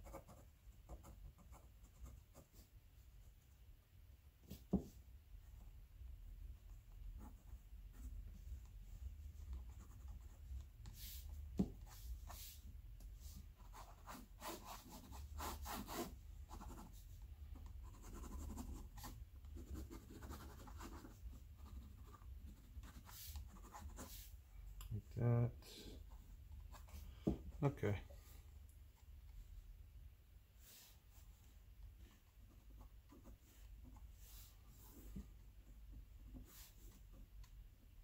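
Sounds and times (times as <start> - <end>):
pen scratching on paper: 13.3 - 17.0, 17.6 - 24.4.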